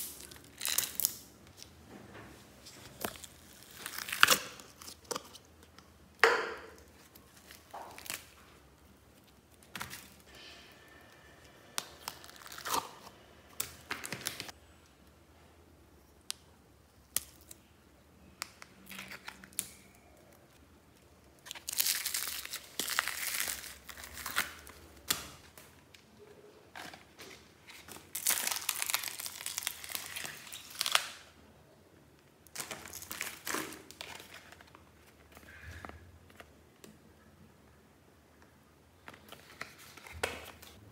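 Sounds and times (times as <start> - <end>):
slime crinkling and crackling in bag: 0.0 - 1.6, 2.8 - 5.4, 11.8 - 13.0, 21.4 - 25.5, 26.7 - 31.3, 32.5 - 35.6.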